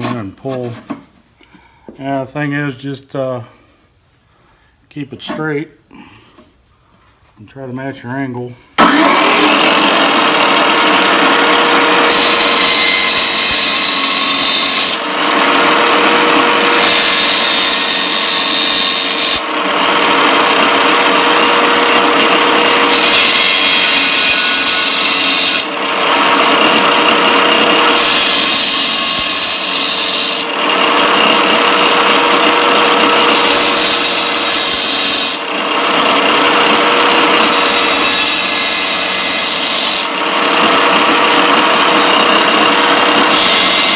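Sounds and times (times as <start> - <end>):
tile saw motor humming: 8.8 - 43.9
harsh grinding of blade teeth: 8.9 - 43.9.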